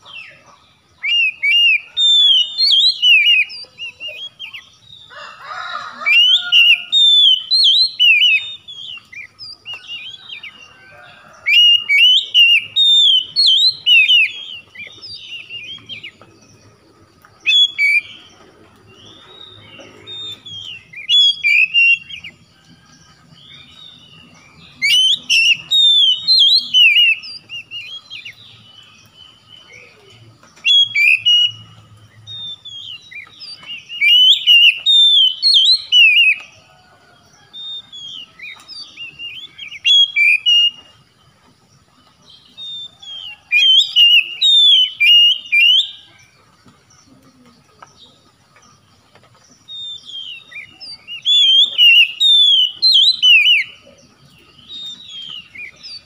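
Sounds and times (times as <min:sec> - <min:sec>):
bird singing whistled phrases: 0:01.0 - 0:04.7, 0:06.1 - 0:10.4, 0:11.5 - 0:16.1, 0:17.4 - 0:18.3, 0:19.0 - 0:22.3, 0:24.2 - 0:28.4, 0:29.6 - 0:36.5, 0:37.6 - 0:40.9, 0:42.6 - 0:46.1, 0:49.7 - 0:53.9.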